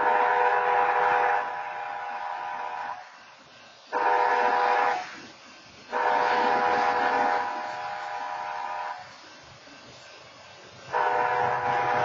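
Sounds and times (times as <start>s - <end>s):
locomotive air horn blasts: 0.0s - 3.0s, 3.9s - 5.2s, 5.9s - 9.1s, 10.9s - 12.0s.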